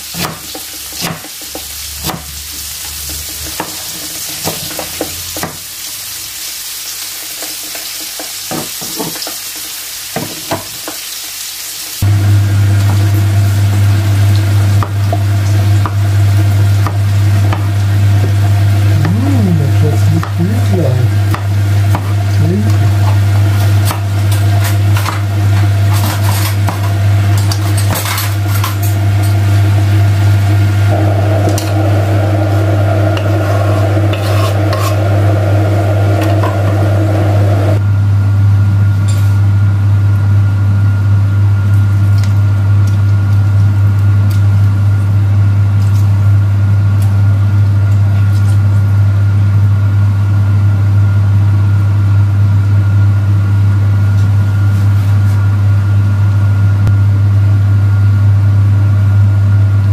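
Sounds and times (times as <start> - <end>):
loud low hum: 12.0 - 38.9.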